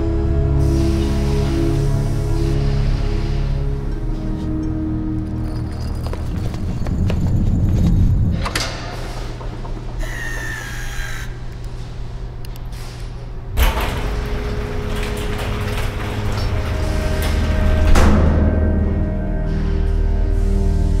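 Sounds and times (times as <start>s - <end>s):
low continuous drone: 0.0s - 21.0s
high metallic squeal: 10.0s - 11.5s.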